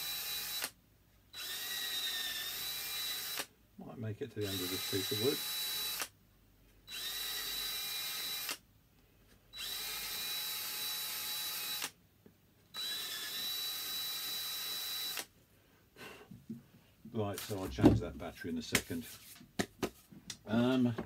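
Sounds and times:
cordless drill whining: 0.0s - 3.5s, 4.4s - 6.2s, 6.9s - 8.6s, 9.5s - 12.0s, 12.7s - 15.3s.

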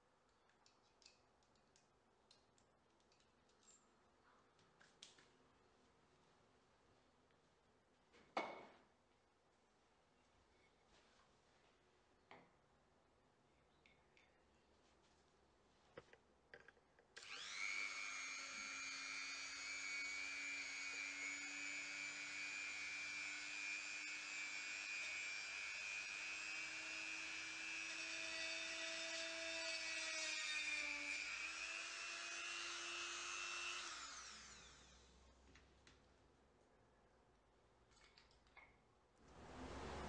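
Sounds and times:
rotary tool high whine: 17.2s - 35.2s.

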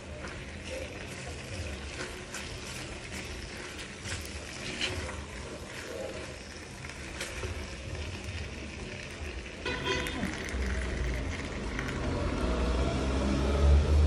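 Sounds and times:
spatula stirring food in pan: 0.0s - 10.0s.

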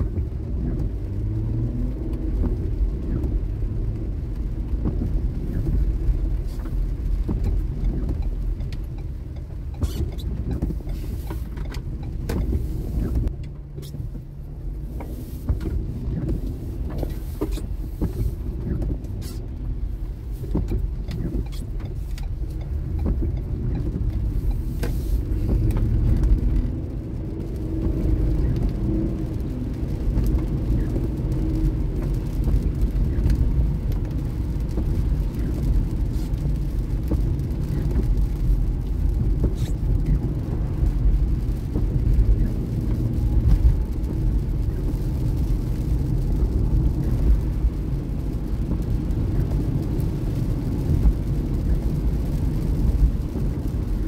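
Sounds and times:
engine and tyres rumbling: 0.0s - 54.0s
light ticks: 2.0s - 14.2s, 14.8s - 54.0s.

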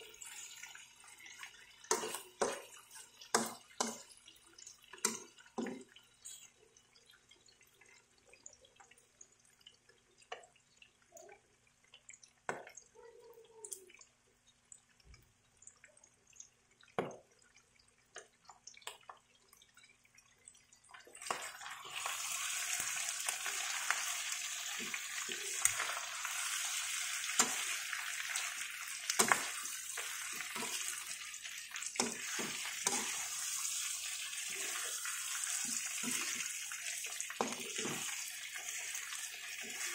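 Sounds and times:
meat sizzling in a wok: 0.0s - 4.2s, 21.2s - 39.9s.

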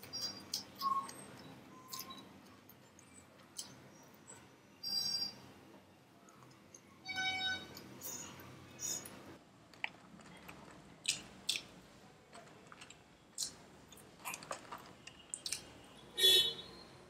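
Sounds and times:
wet mouth clicks and smacks: 11.0s - 11.7s, 13.4s - 15.7s
chewing with mouth closed: 12.7s - 15.7s.

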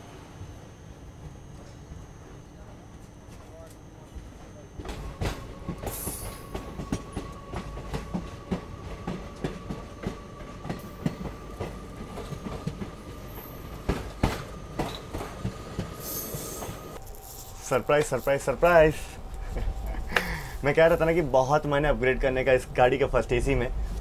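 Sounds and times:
train wheels clicking over rail joints: 4.8s - 17.0s
steady high whine: 14.8s - 24.0s.

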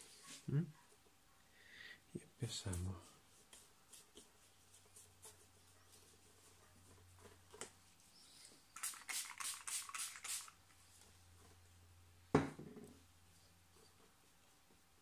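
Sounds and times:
paintbrush scrubbing strokes: 2.7s - 6.7s.

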